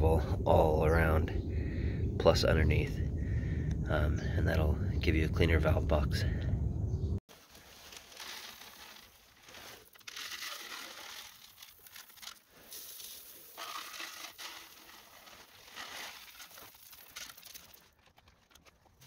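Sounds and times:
gravel trickling: 0:07.3 - 0:19.0
plastic bag crinkling: 0:07.3 - 0:19.0.

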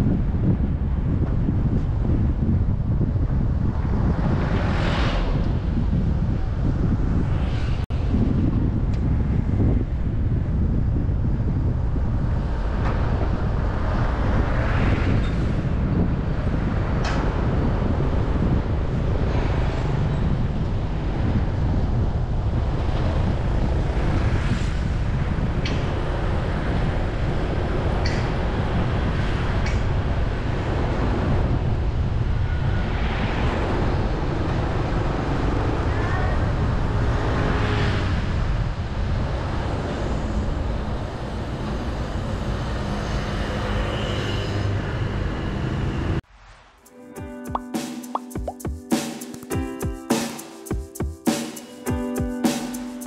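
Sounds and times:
wind on microphone: 0:00.0 - 0:43.8
road noise: 0:00.0 - 0:47.0
traffic passing: 0:11.6 - 0:46.8.

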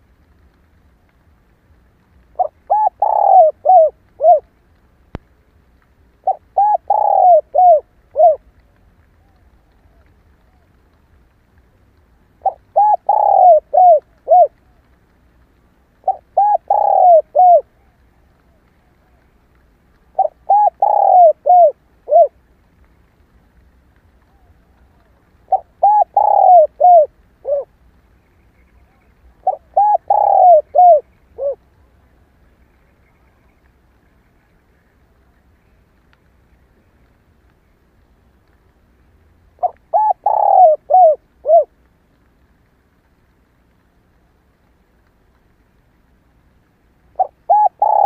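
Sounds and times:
dove cooing: 0:02.3 - 0:04.5, 0:06.2 - 0:08.6, 0:12.4 - 0:14.8, 0:16.0 - 0:19.4, 0:20.1 - 0:22.4, 0:24.3 - 0:27.8, 0:28.8 - 0:31.7, 0:39.6 - 0:41.8, 0:47.1 - 0:48.0.

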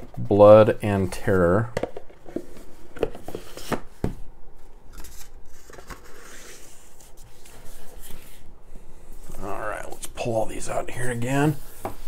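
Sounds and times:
cases sliding and rubbing: 0:01.2 - 0:04.2, 0:10.9 - 0:12.0.

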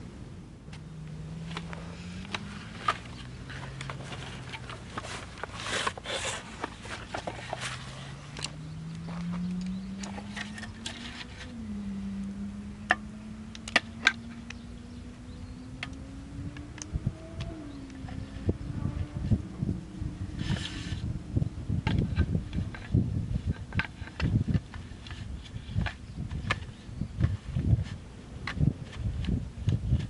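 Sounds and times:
low drone rising in pitch: 0:00.0 - 0:05.5, 0:07.1 - 0:25.2.

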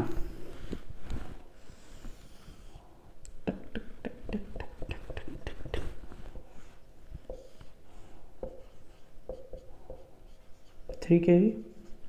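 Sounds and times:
whiteboard marker strokes: 0:04.4 - 0:12.0.

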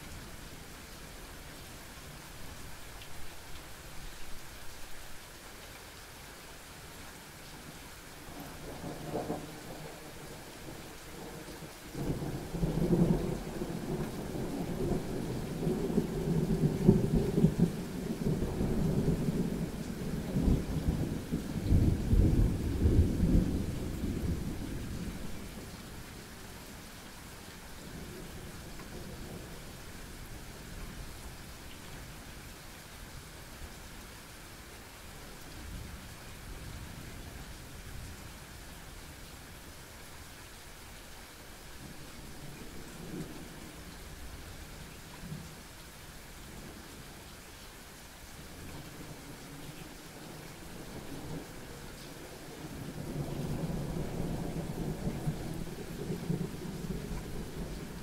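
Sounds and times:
steady rain: 0:00.0 - 0:58.0
thunder rumbling: 0:12.0 - 0:25.8.

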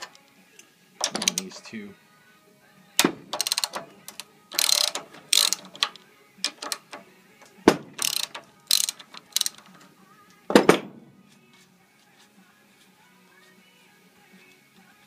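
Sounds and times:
ratchet wrench clicking: 0:03.0 - 0:07.1, 0:07.9 - 0:09.9.

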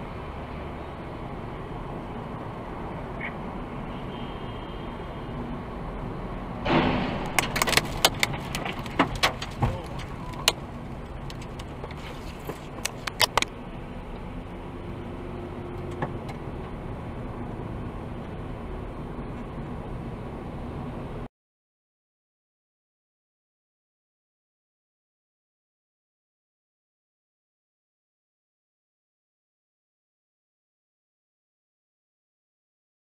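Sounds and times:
car road and engine noise: 0:00.0 - 0:21.3
loud burst: 0:06.6 - 0:07.6
sharp clicks and rattles: 0:06.7 - 0:13.6.

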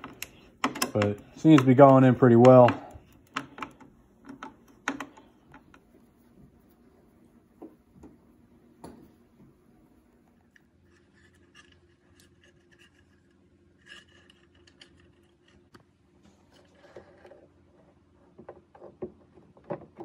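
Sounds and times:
low steady hum: 0:00.0 - 0:20.0
faint scratching: 0:10.1 - 0:18.4.

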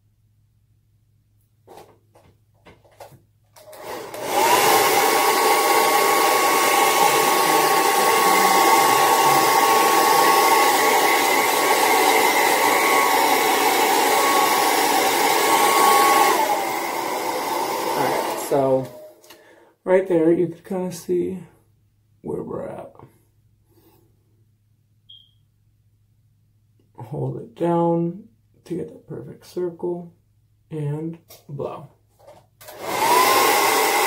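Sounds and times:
hair dryer whining: 0:03.0 - 0:19.4, 0:32.6 - 0:34.0.

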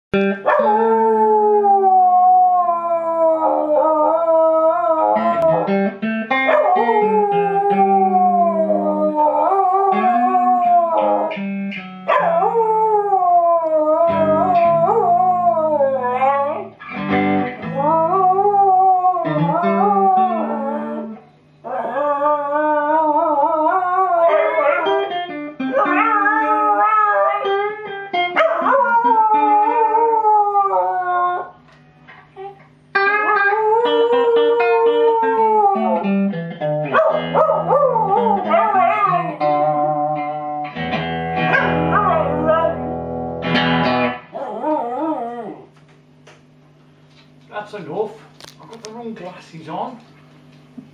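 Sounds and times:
electric guitar through amplifier: 0:00.2 - 0:50.9
dog howling: 0:00.4 - 0:05.8, 0:06.5 - 0:11.4, 0:12.1 - 0:16.8, 0:17.6 - 0:27.8, 0:28.4 - 0:31.6, 0:32.4 - 0:36.2, 0:36.9 - 0:40.7, 0:41.4 - 0:43.3, 0:44.4 - 0:45.7.

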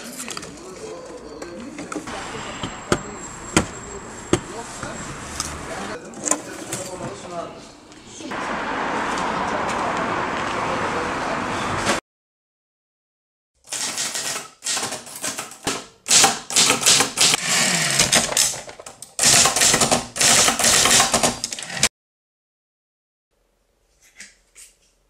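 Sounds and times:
typewriter typing: 0:13.7 - 0:17.4, 0:19.2 - 0:21.9.

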